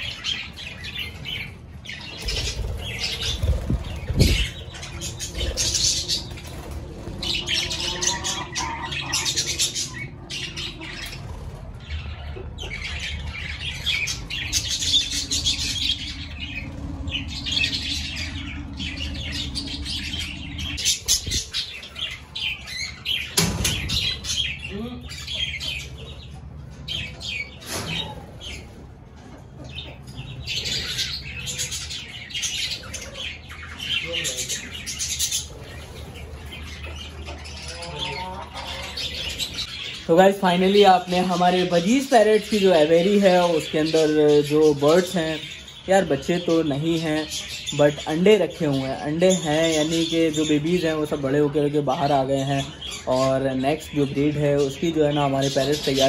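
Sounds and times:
steady low hum: 0.0 - 27.6
budgerigars chattering: 0.0 - 28.7, 29.6 - 56.0.

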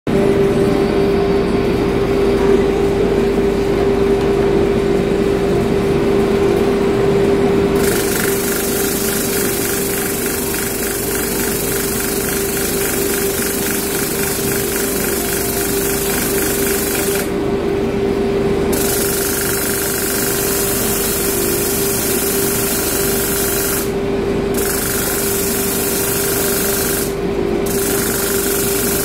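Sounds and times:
electric motor humming: 7.8 - 17.5, 18.7 - 29.0.

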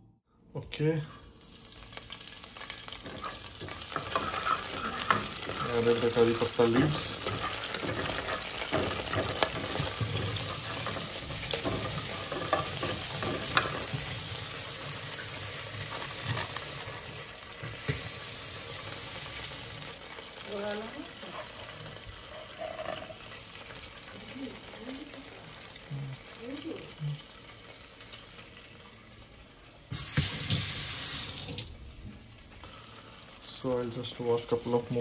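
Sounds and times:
leaves sizzling in hot oil: 0.8 - 35.0
stirring knocks and scrapes: 2.6 - 18.1.

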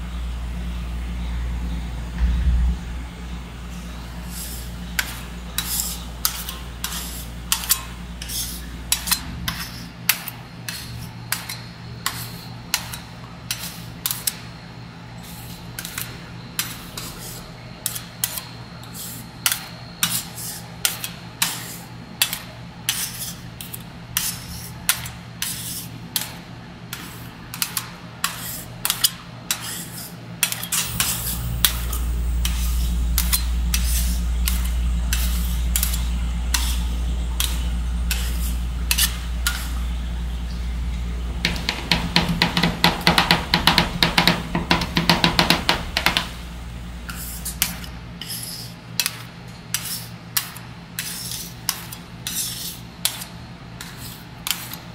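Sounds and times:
steady low hum: 0.0 - 54.9
deep rumble: 1.5 - 4.2, 30.8 - 45.1
metal spatulas scraping metal plate: 4.2 - 11.0, 27.6 - 39.8, 47.1 - 50.1, 51.0 - 54.8.

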